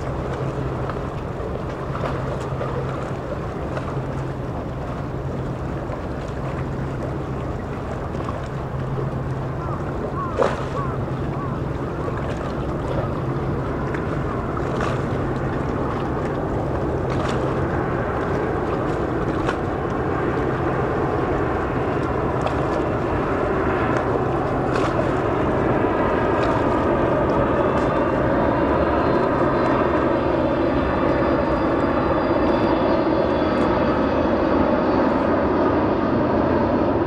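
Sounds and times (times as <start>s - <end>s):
jet engine rush: 0.0s - 37.0s
low hum: 0.0s - 37.0s.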